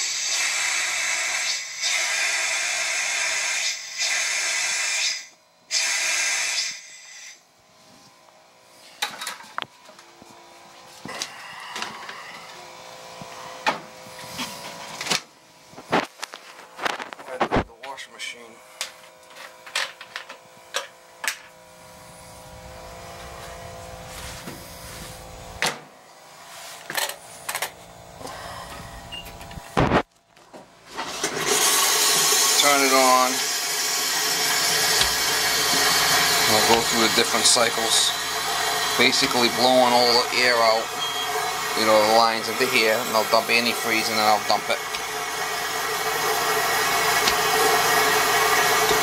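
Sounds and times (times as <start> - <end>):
washing machine hum: 0.0 - 4.9, 5.6 - 18.0, 18.8 - 49.0
compressed air hissing from spout: 0.0 - 7.4, 31.4 - 49.0.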